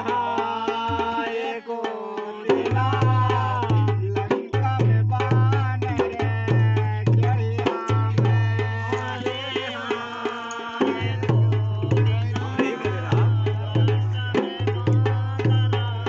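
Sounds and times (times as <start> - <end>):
hand drums playing fast rhythm: 0.0 - 16.0
kettle drums beaten with sticks: 0.0 - 16.0
deep bass drum: 2.7 - 8.9, 11.0 - 16.0.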